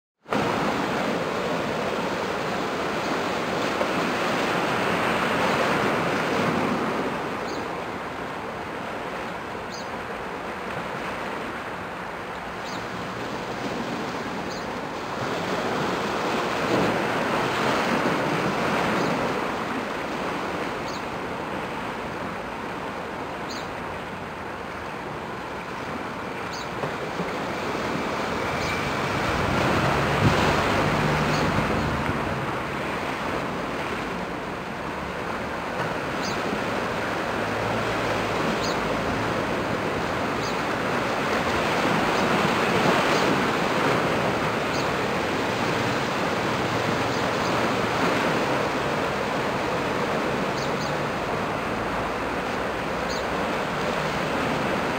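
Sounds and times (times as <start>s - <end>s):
rushing wind: 0.2s - 54.9s
waves washing on rocks: 0.3s - 54.9s
wind buffeting microphone: 26.9s - 35.2s.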